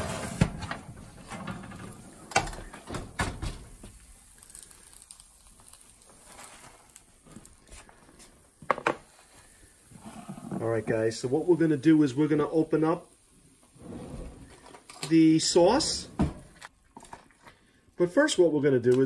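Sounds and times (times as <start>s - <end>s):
baking sheet scraping oven rack: 0.0s - 2.7s.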